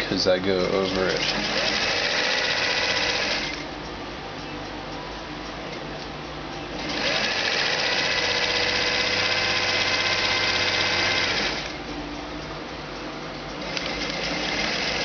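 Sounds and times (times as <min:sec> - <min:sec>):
sewing machine stitching: 0:00.6 - 0:03.6, 0:06.8 - 0:11.8, 0:13.6 - 0:15.0.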